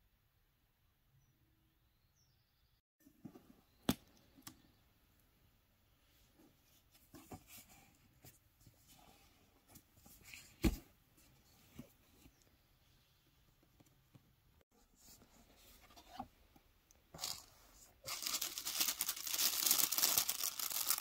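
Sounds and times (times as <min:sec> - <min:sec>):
cord and card rustling: 0:17.2 - 0:21.0.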